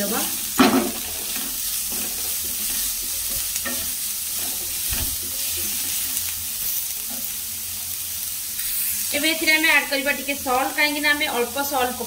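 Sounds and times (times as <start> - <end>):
vegetables sizzling in oil: 0.0 - 12.0
spatula scraping pan: 0.6 - 6.2.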